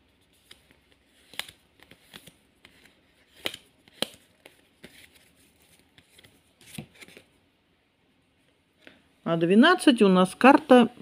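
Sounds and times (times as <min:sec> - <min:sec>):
cards rustling: 0:00.2 - 0:07.3
cards snapping: 0:00.4 - 0:05.2.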